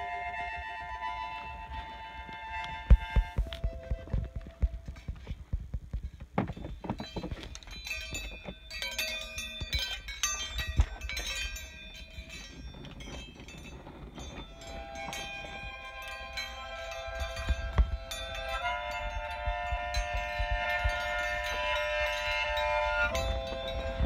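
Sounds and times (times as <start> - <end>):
handling thumps and knocks: 2.9 - 14.5
metallic clinking and ringing: 6.0 - 24.0
chime-like tones: 6.5 - 24.0.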